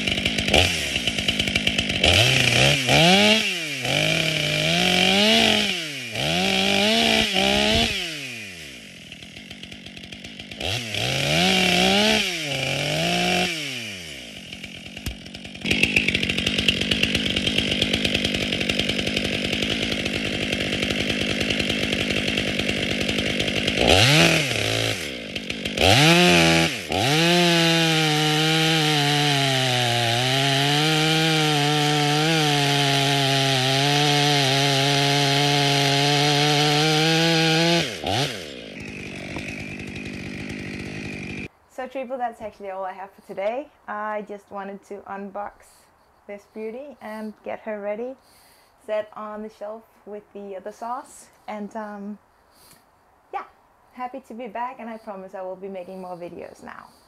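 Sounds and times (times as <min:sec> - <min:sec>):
chainsaw revving and cutting: 0:00.0 - 0:41.5, 0:46.4 - 0:47.4, 0:54.8 - 0:57.0.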